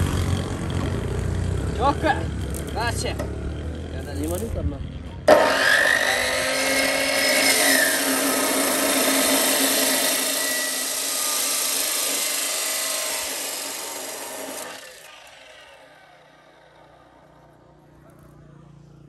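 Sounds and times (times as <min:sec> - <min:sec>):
cut-off saw grinding steel pipe: 0:05.3 - 0:17.4.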